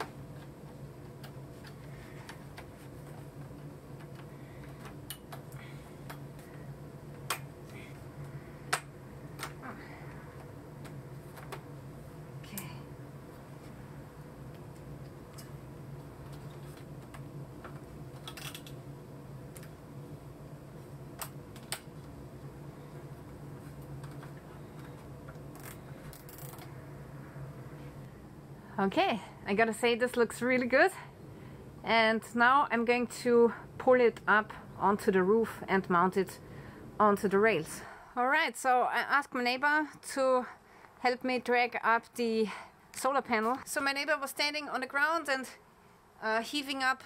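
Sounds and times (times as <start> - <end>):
steady low hum: 0.0 - 47.0
cable tie ratcheting rasps: 24.0 - 26.7.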